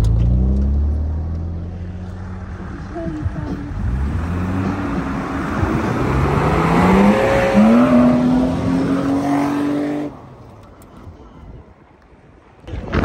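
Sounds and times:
car engine revving: 0:00.0 - 0:10.2.

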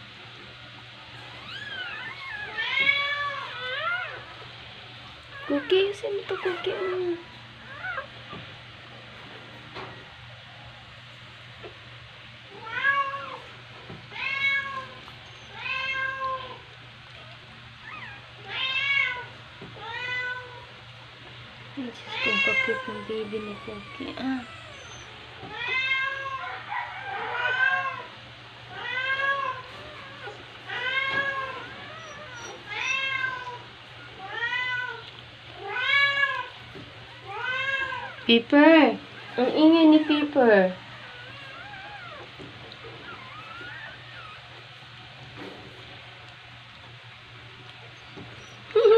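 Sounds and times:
puppy crying: 0:01.2 - 0:08.4, 0:14.2 - 0:21.4, 0:22.0 - 0:45.0, 0:47.7 - 0:48.9
cat meowing: 0:14.1 - 0:16.6, 0:22.1 - 0:28.1.

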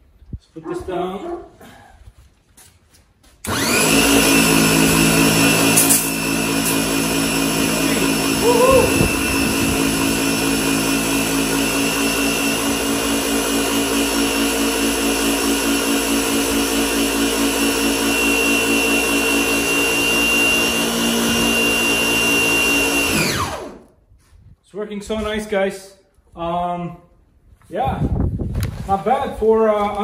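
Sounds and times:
pressure washer running: 0:03.5 - 0:23.9.

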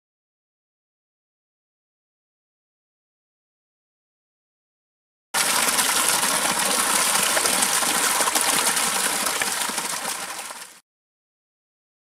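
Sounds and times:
water gushing from pipe: 0:05.4 - 0:10.8.

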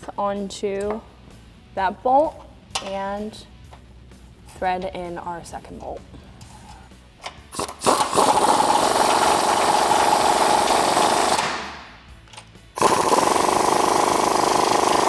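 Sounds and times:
pneumatic wrench rattling: 0:07.2 - 0:11.7, 0:12.3 - 0:15.0.

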